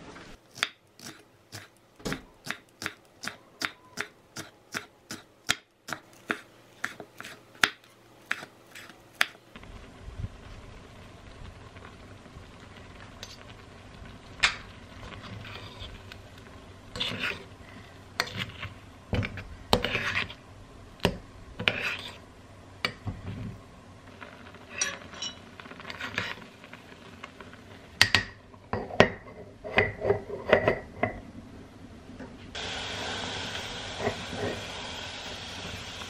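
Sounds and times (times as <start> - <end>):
metal spoon scraping pot: 15.0 - 16.0, 16.9 - 17.5, 18.2 - 18.7, 19.7 - 20.4, 21.6 - 22.2, 24.7 - 26.4
steady hiss: 32.4 - 36.0.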